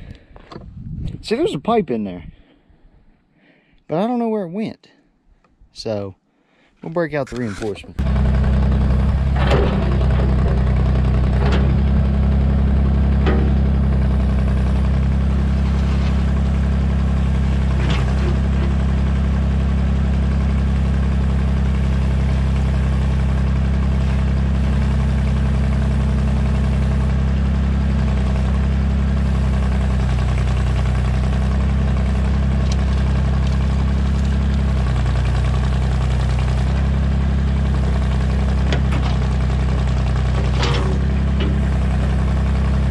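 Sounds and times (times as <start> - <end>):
excavator engine running: 7.1 - 42.9
bucket digging into gravel: 15.4 - 16.4.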